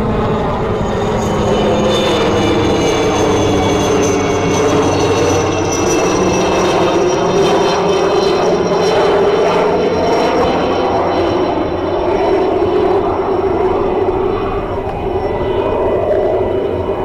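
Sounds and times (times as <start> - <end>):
helicopter rotor rumble: 0.0 - 17.0
helicopter turbine whine: 0.0 - 17.0.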